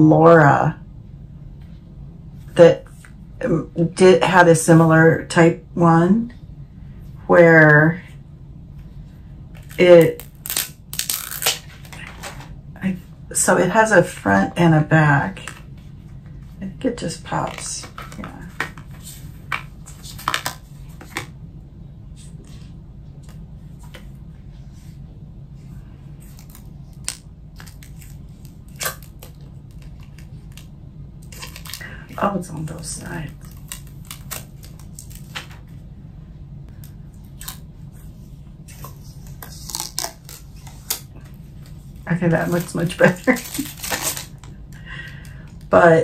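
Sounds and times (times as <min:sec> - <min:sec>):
low hum: 0:00.0 - 0:46.0
plastic film crinkling: 0:09.6 - 0:12.4, 0:26.2 - 0:32.0, 0:33.2 - 0:35.5, 0:38.9 - 0:41.1, 0:42.3 - 0:44.6.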